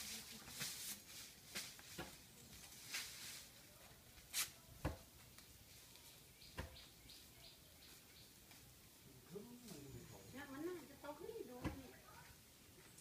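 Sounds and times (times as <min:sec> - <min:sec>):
broom strands rustling: 0:00.0 - 0:04.7.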